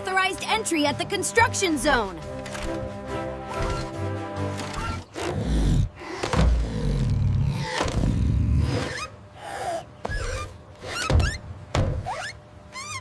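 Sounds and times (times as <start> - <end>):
knocks: 11.1 - 12.1.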